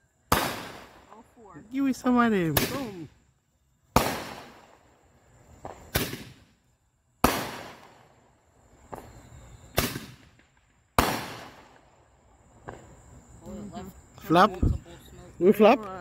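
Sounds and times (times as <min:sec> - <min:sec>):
fireworks bangs: 0:00.3 - 0:01.2, 0:02.1 - 0:03.1, 0:03.9 - 0:06.6, 0:07.2 - 0:13.0.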